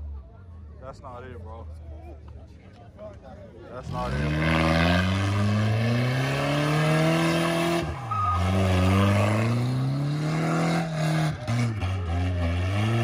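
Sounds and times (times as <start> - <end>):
car engine revving: 3.8 - 13.0.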